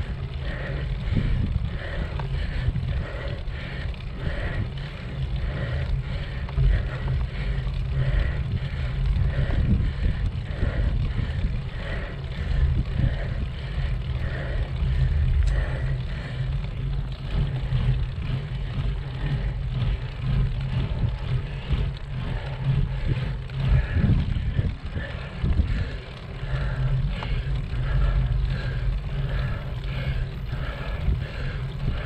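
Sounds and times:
tyre and road noise: 0.0 - 32.0
wind on microphone: 0.9 - 3.3, 8.2 - 15.8, 19.7 - 28.3.

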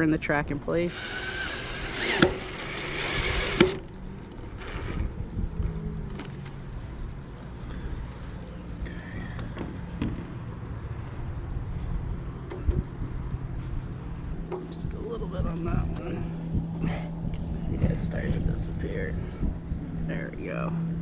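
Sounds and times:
cordless drill driving screw: 0.9 - 6.2.

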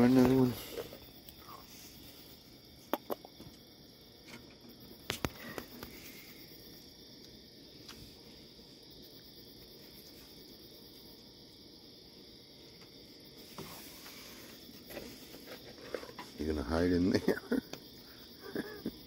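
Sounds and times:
night insects chirring: 0.0 - 19.0.

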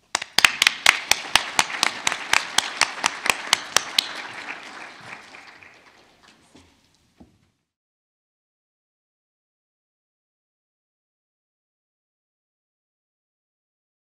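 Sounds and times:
nearby hands clapping: 0.0 - 6.8
audience applauding: 0.0 - 6.9.

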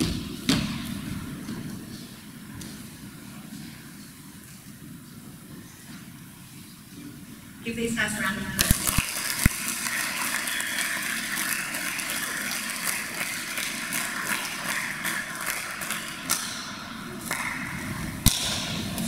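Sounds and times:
audience applauding: 8.7 - 18.1.

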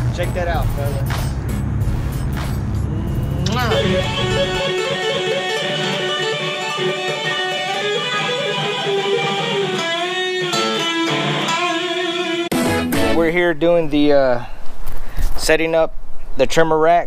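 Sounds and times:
electric guitar lead melody: 3.3 - 13.2.

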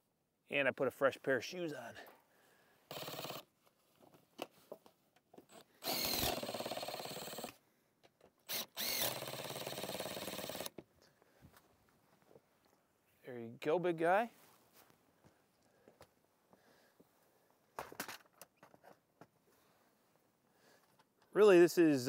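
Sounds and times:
power ratchet running: 2.9 - 3.4, 5.5 - 7.6, 8.5 - 10.7.

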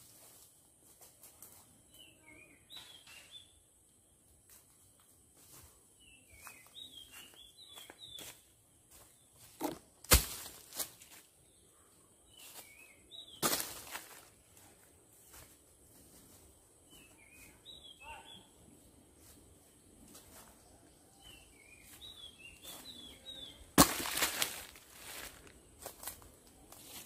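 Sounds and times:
footsteps in dry leaves: 0.0 - 1.8, 5.4 - 11.4, 12.4 - 16.6, 23.8 - 27.0.

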